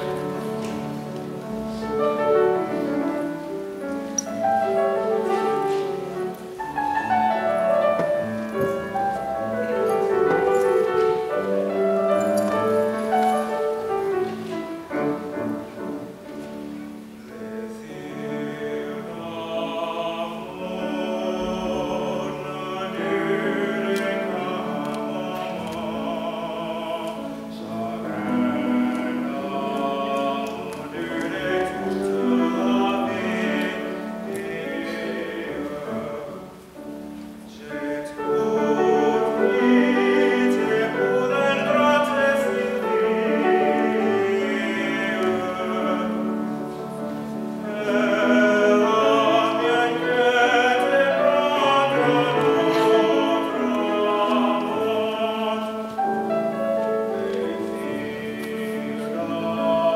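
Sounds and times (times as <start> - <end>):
grand piano: 0.0 - 59.9
man singing operatically: 17.7 - 36.7, 37.5 - 46.7, 47.5 - 59.9.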